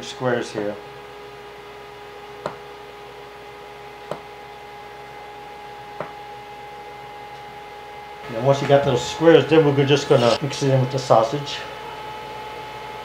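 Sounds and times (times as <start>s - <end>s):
air fryer humming: 0.0s - 13.0s
pizza cutter knocking on wood: 2.4s - 2.7s, 4.0s - 4.3s, 6.0s - 6.2s.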